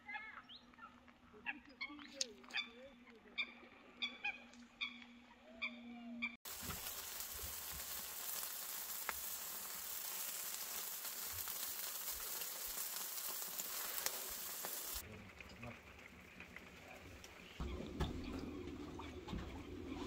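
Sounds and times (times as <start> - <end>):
birds calling: 0.1 - 15.0
meat sizzling on charcoal grill: 6.4 - 18.4.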